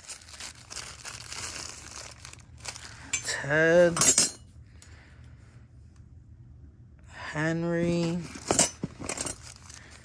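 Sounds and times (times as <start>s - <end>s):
packaging crinkling: 0.0s - 3.1s.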